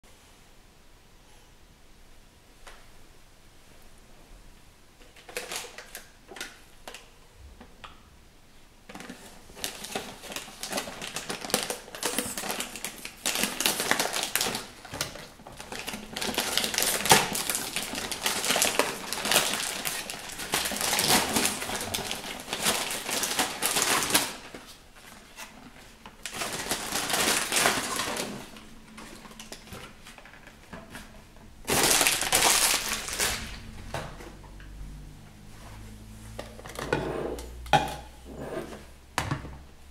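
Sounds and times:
cardboard and packaging crackling: 0:08.9 - 0:34.4.

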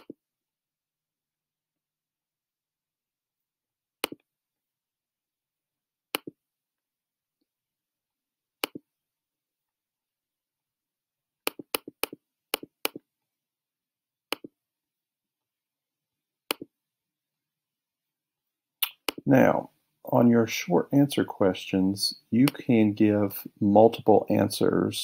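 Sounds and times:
computer mouse clicks: 0:04.0 - 0:04.3, 0:06.1 - 0:06.4, 0:08.6 - 0:08.8, 0:11.5 - 0:13.0, 0:14.3 - 0:14.5, 0:16.5 - 0:16.7, 0:18.8 - 0:19.2.

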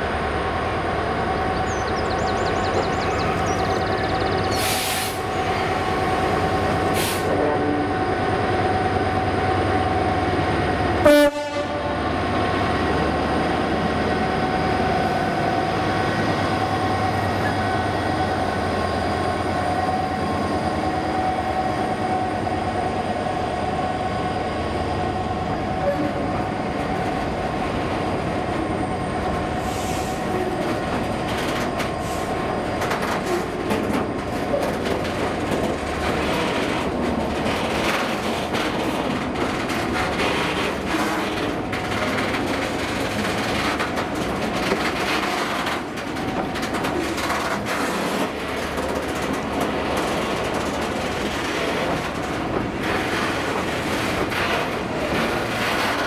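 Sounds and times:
diesel locomotive engine drone: 0:00.0 - 0:56.0.

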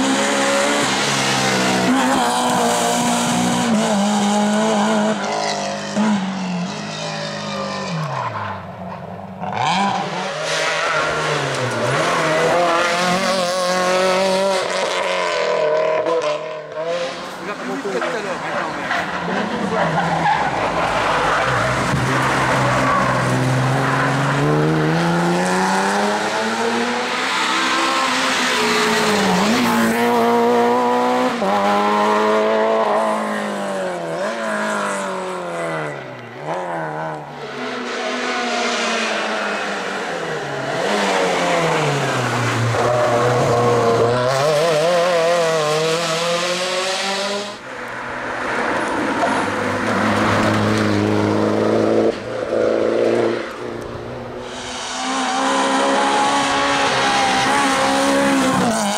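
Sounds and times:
rally car engines revving: 0:00.0 - 0:58.9.

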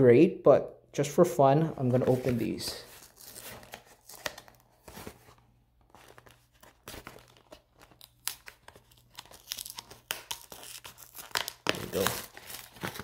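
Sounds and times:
card pack wrapper tearing: 0:02.9 - 0:04.6, 0:05.9 - 0:13.0
wrapper crinkling: 0:05.9 - 0:13.0.

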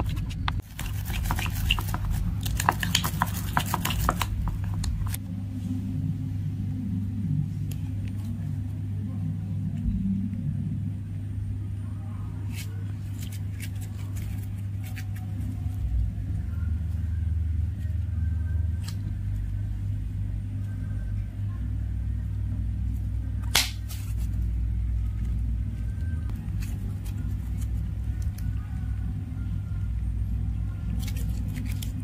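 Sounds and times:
steady low rumble: 0:00.0 - 0:32.0.

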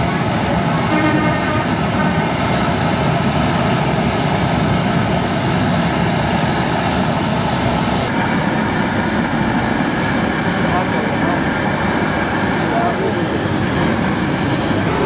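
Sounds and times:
gas burner roaring: 0:00.0 - 0:15.0.

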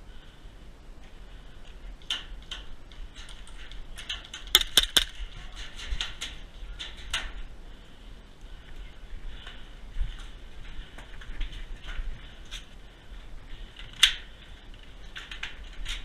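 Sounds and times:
airsoft pistol shots: 0:04.6 - 0:05.1.

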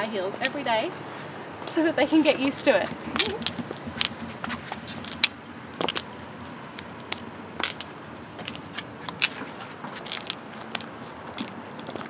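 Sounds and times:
heel clicks on concrete: 0:03.1 - 0:06.1, 0:06.8 - 0:12.0.

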